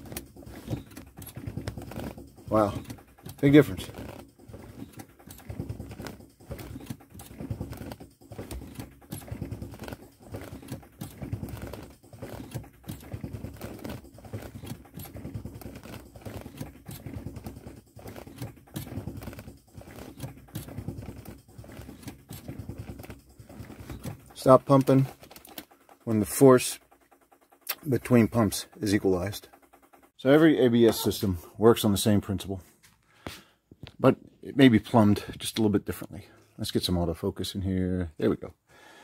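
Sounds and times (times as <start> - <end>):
solenoids clicking rapidly: 0.0 - 32.4.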